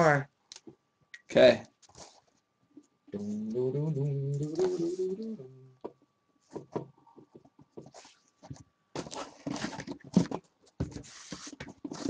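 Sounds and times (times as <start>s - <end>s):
cardboard taps scrapes and rustles: 6.5s - 12.0s.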